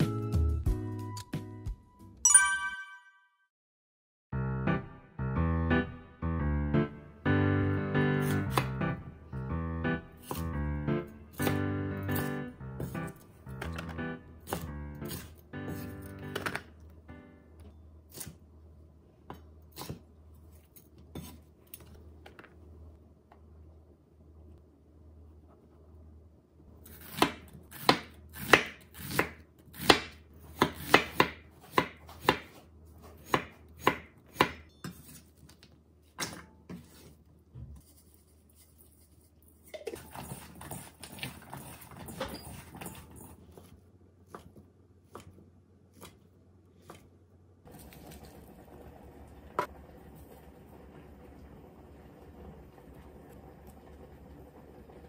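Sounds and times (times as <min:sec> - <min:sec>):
knife chopping on wooden board: 0:10.2 - 0:10.5, 0:27.0 - 0:35.2.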